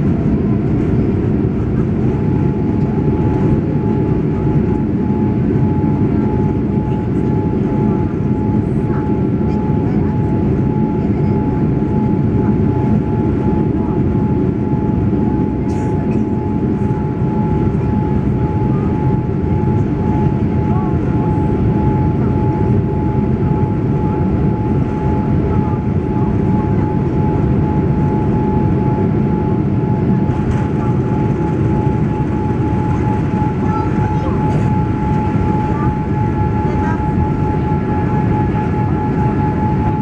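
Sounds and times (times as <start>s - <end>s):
deep rumble of engines and wheels: 0.0s - 40.0s
jet engine whine: 0.0s - 40.0s.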